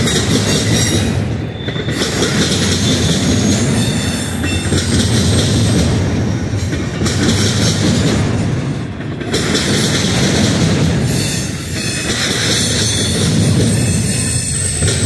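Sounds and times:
freight train wheels rumbling: 0:00.0 - 0:15.0.

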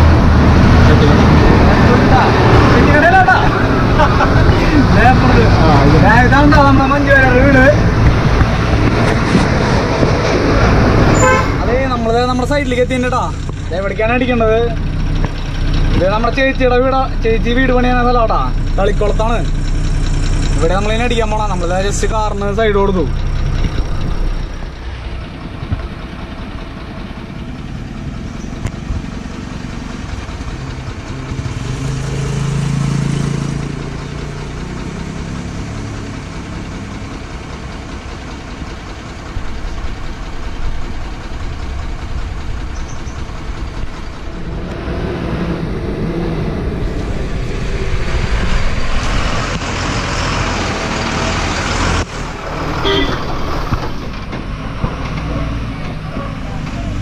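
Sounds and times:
diesel truck engine idling: 0:00.0 - 0:57.0
broad rushing noise: 0:43.4 - 0:55.0.

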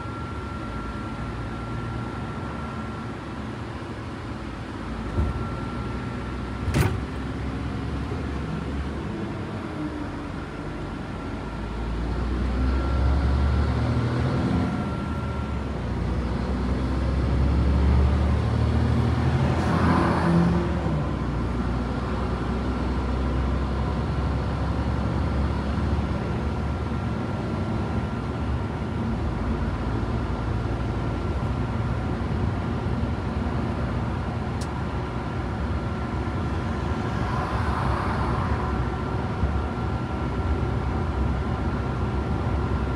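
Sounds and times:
faint steady whine: 0:00.0 - 0:06.1
truck engine drone: 0:00.0 - 0:42.9.

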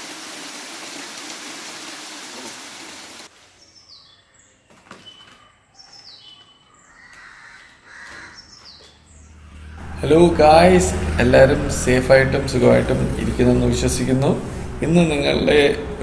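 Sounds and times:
birds chirping downward calls: 0:03.6 - 0:11.2.

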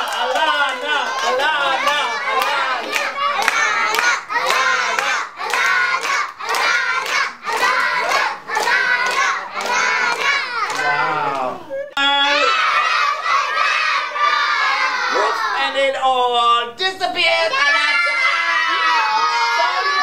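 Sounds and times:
clapping: 0:00.0 - 0:11.5
children shouting in rhythm: 0:00.9 - 0:11.5, 0:12.1 - 0:15.6, 0:17.5 - 0:20.0.

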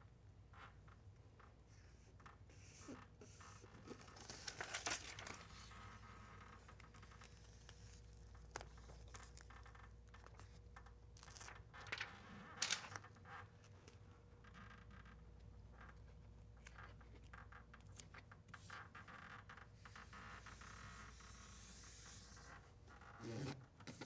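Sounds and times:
paper liner crinkling and rustling: 0:02.6 - 0:14.0.

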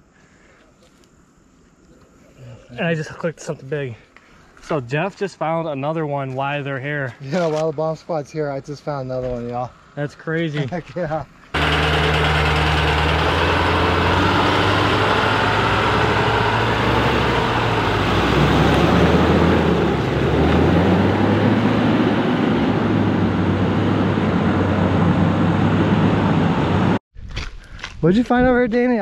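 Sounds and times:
truck engines pulling away: 0:11.6 - 0:27.0.

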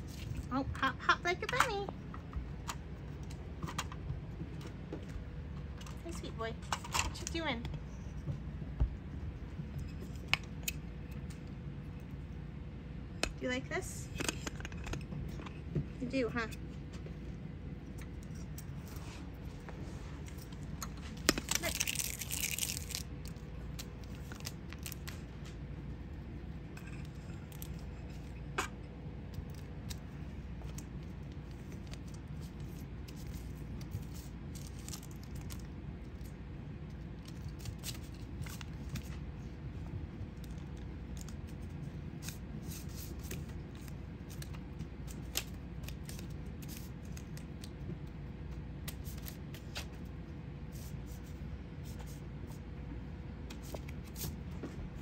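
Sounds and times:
steady low hum: 0:00.0 - 0:55.0
wrapper and paper crinkling: 0:21.0 - 0:25.3, 0:33.1 - 0:35.7.

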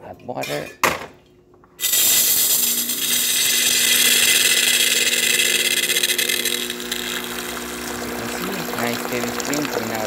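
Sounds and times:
steam wand hissing: 0:01.8 - 0:07.7
machine pump humming: 0:01.8 - 0:10.0.

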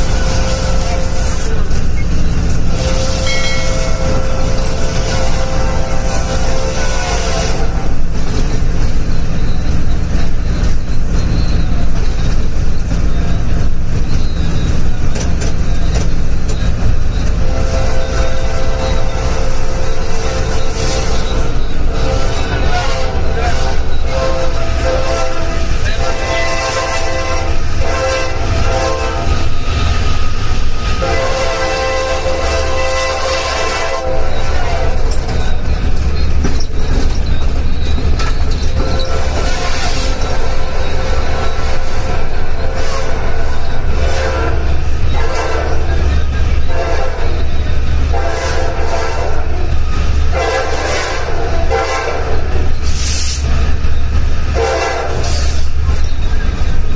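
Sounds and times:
train horn blasts: 0:00.0 - 0:01.8, 0:02.6 - 0:08.1, 0:17.2 - 0:35.7, 0:38.7 - 0:52.9, 0:54.5 - 0:55.8
train rumbling on rails: 0:00.0 - 0:56.9.

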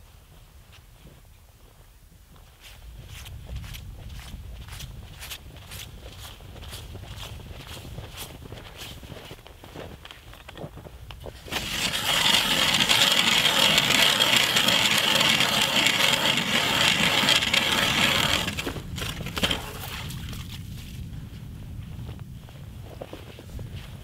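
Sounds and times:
footsteps shuffling in snow: 0:00.0 - 0:12.4, 0:20.2 - 0:24.0
ice auger grinding into ice: 0:11.4 - 0:20.4.

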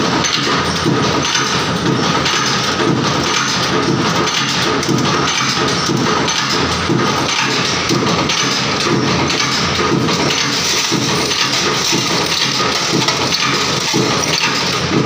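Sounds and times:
machine running loudly: 0:00.0 - 0:15.0
screws clattering down metal chute: 0:08.4 - 0:15.0.

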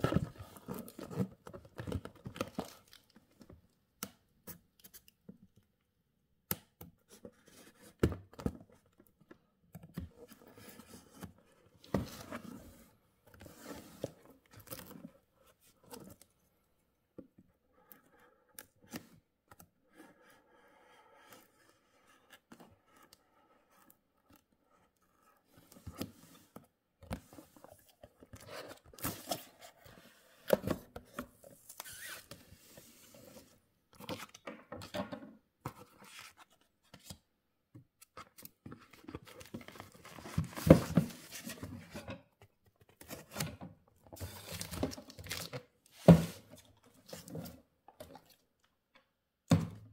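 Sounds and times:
tape tearing: 0:31.6 - 0:32.4
knife scraping through tape: 0:31.8 - 0:32.3.

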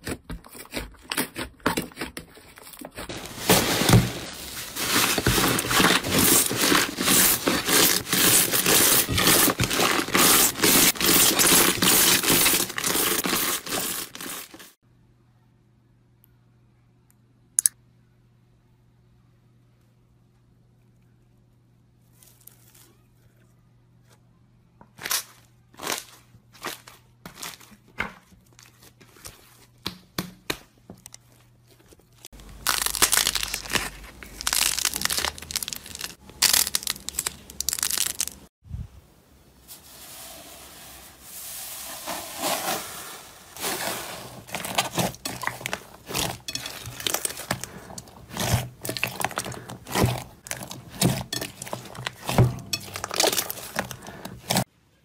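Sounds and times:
slime crackling as kneaded: 0:32.4 - 0:38.5, 0:43.6 - 0:54.7.

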